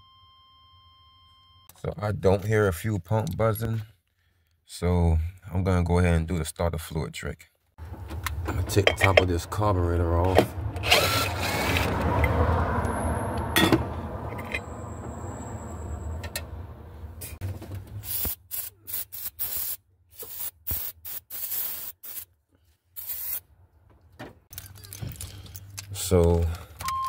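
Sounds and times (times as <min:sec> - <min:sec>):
impact driver running: 0:10.8 - 0:12.0
aerosol spray spurts: 0:18.0 - 0:22.3.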